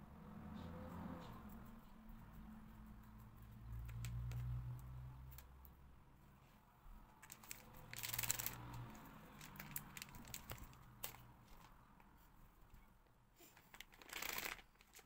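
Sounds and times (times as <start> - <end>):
small clicks and taps: 1.5 - 5.8
plastic bag rustling: 7.2 - 8.7, 9.4 - 11.7, 13.4 - 15.0.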